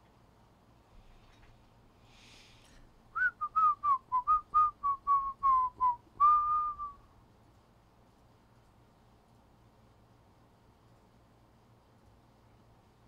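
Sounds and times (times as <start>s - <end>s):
person whistling a tune: 3.2s - 7.0s.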